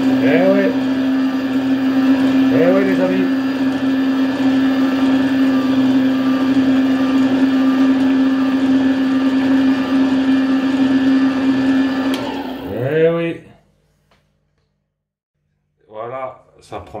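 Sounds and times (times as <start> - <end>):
juicer motor humming: 0.0 - 13.0.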